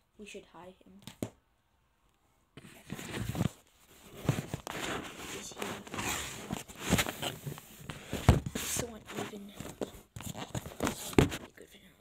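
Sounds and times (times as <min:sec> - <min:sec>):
fleece sleeve brushing microphone: 0:02.6 - 0:11.5
rustling handling noise: 0:02.6 - 0:11.6.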